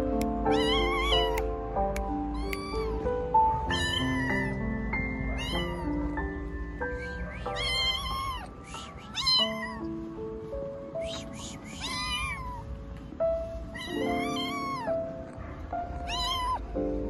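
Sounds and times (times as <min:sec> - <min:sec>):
background music with held notes: 0:00.0 - 0:17.0
kitten meowing: 0:00.2 - 0:10.2, 0:10.9 - 0:16.8.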